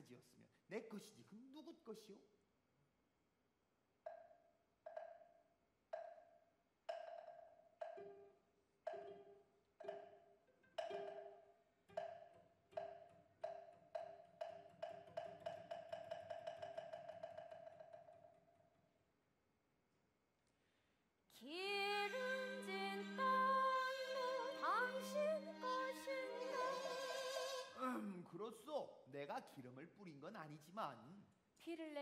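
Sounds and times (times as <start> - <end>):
ringing percussion notes: 22.0 - 27.8.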